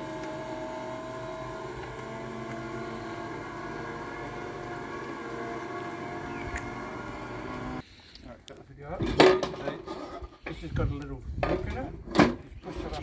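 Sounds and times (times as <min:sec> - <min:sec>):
roller shutter motor humming: 0:00.0 - 0:07.8.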